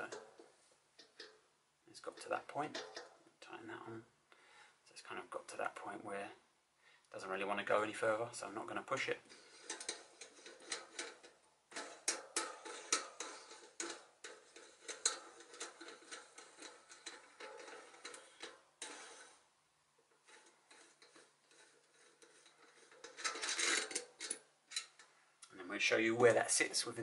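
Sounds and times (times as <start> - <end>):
faint metal clicks: 9.2 - 19.4.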